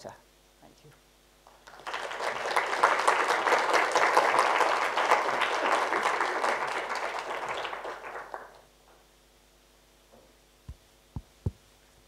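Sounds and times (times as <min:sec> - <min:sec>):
audience applauding: 0:01.5 - 0:08.7.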